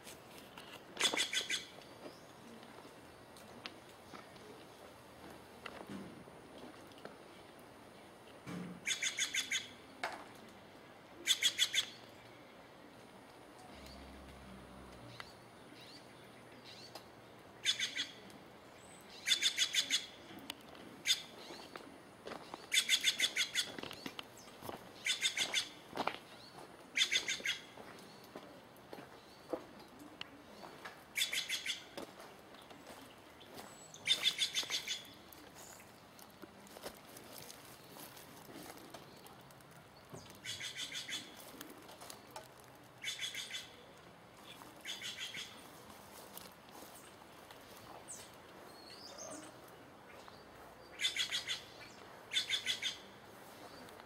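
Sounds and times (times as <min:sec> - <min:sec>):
bird harsh rapid calls: 0:01.0 - 0:01.7, 0:08.8 - 0:09.8, 0:22.7 - 0:23.7, 0:25.0 - 0:25.8, 0:27.0 - 0:27.7, 0:31.2 - 0:31.9, 0:34.0 - 0:35.1, 0:40.4 - 0:41.4, 0:43.0 - 0:43.8, 0:44.4 - 0:45.6, 0:50.9 - 0:53.1.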